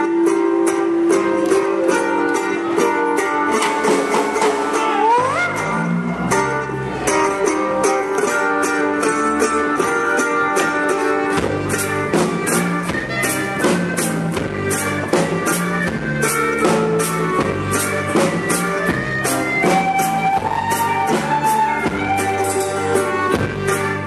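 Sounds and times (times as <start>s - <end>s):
clarinet playing: 0.0s - 3.5s, 4.6s - 6.2s, 12.0s - 24.0s
acoustic guitar: 0.0s - 24.0s
double bass: 0.0s - 24.0s
mandolin: 0.0s - 24.0s
drum kit beat: 2.8s - 6.5s, 9.6s - 24.0s.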